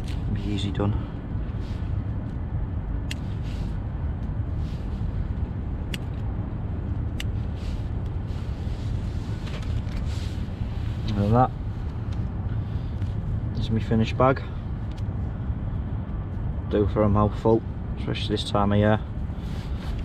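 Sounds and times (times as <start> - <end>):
low rumble: 0.0 - 20.0
scissors snipping: 3.0 - 3.2.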